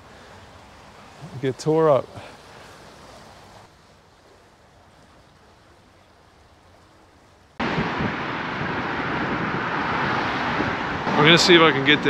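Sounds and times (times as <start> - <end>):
brook water flowing: 0.0 - 12.0
loud rushing noise: 7.6 - 12.0.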